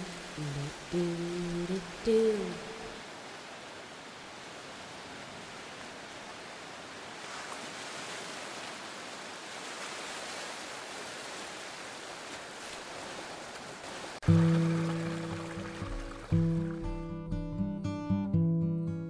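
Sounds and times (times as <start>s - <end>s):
acoustic guitar chord: 14.3s - 19.0s.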